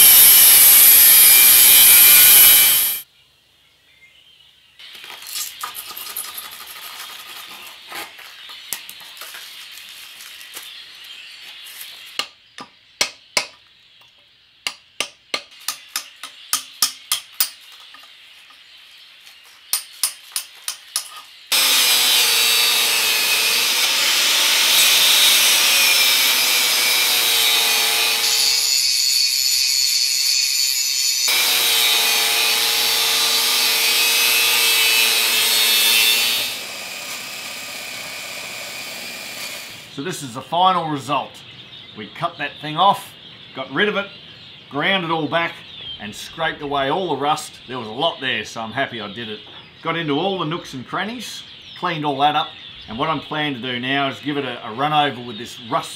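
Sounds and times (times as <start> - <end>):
angle grinder grinding: 0.0 - 3.0, 21.5 - 40.0.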